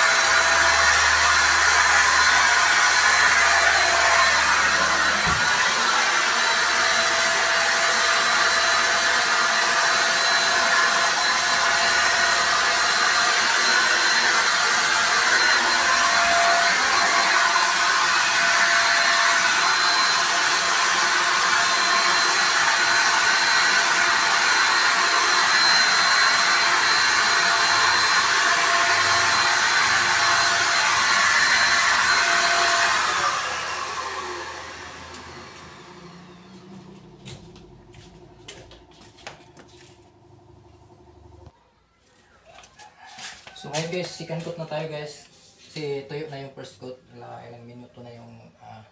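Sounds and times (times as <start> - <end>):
paint spray gun motor whine: 0.0 - 38.8.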